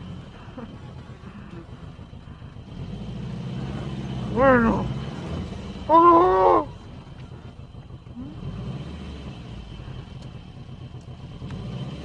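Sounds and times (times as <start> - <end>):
car engine idling: 0.0 - 12.0
person yelling: 4.4 - 5.0, 5.9 - 6.8.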